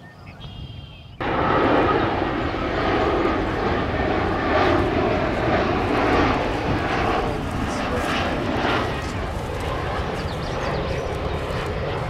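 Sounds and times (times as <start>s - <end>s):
jet airliner engines running: 0.0s - 12.0s.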